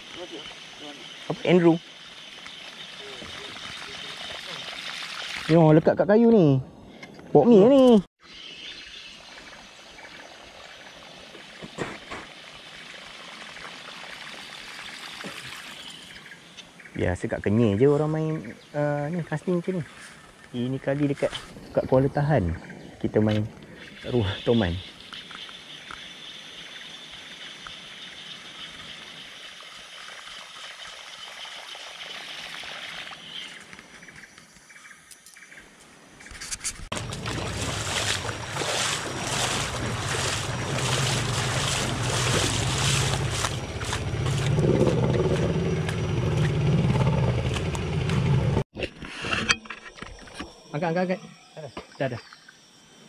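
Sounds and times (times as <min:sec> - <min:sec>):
cicadas droning: 0:00.0 - 0:48.6, 0:49.6 - 0:53.0
river water rushing: 0:36.9 - 0:44.6.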